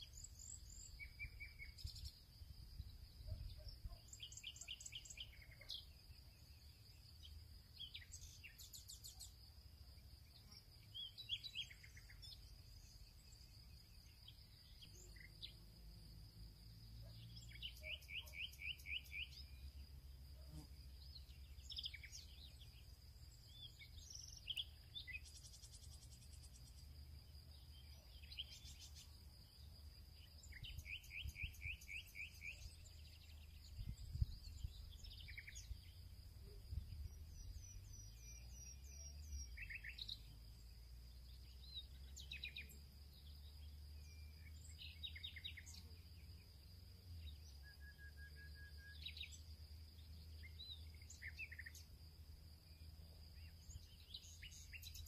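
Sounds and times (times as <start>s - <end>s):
faint birds chirping: 0.0s - 55.0s
bird trill: 17.4s - 19.4s.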